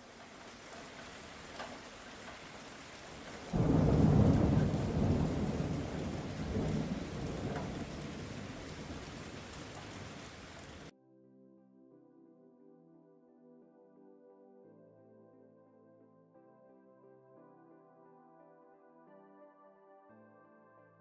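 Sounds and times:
steady rain: 0.0 - 10.9
thunderclap with rumble: 0.6 - 10.9.

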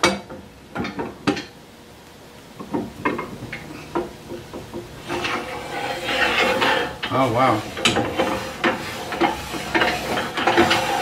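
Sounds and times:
metal scraping rub: 5.0 - 11.0.

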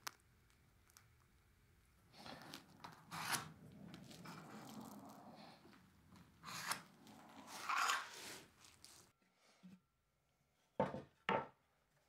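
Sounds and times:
steel square scraping on wood: 3.1 - 3.6, 6.4 - 8.8.

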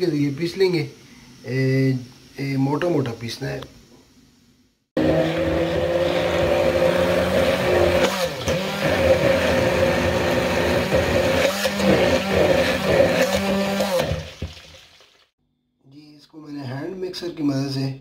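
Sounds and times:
electric hand blender running: 5.0 - 14.6.

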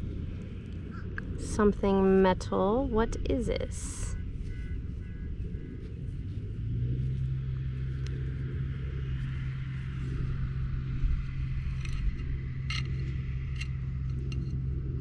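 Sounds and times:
low mechanical hum: 0.0 - 15.0
metal digging tool handled: 11.7 - 14.6.

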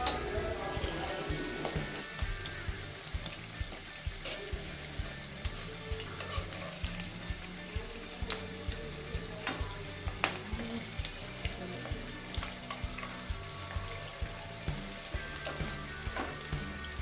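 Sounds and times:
background music with steady beat: 0.0 - 17.0
cutlets sizzling in hot oil: 0.0 - 17.0.

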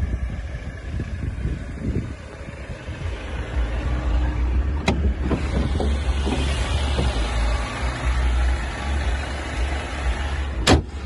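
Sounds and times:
steady low rumble: 0.0 - 11.0
car bonnet latch click: 4.8 - 7.2, 10.6 - 11.0.

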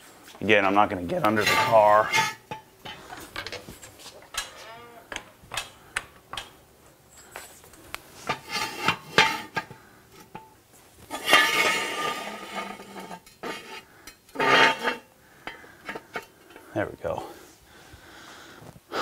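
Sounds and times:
metal jack stands clanking on concrete: 4.3 - 6.5.

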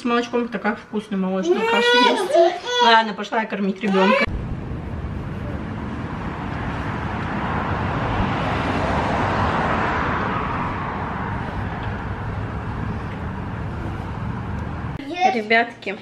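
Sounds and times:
outdoor rushing noise: 4.2 - 15.0
stroller wheels rolling on asphalt: 5.2 - 15.0.

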